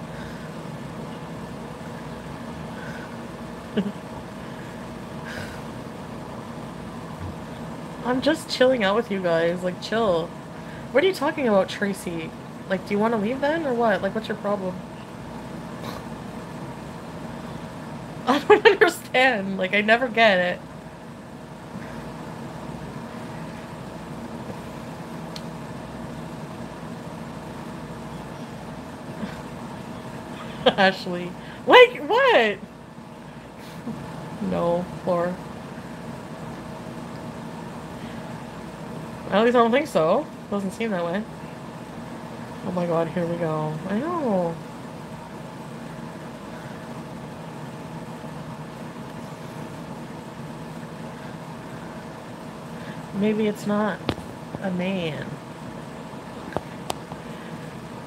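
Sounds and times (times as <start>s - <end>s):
faint constant whine: 0.0s - 58.0s
room hum: 0.0s - 58.0s
person chuckling: 3.7s - 4.1s.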